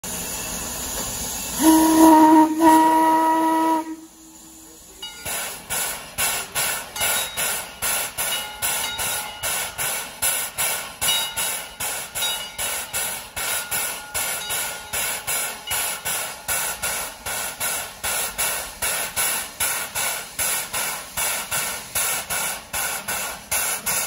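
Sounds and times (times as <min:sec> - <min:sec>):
steam locomotive whistle: 0:01.4 - 0:05.0.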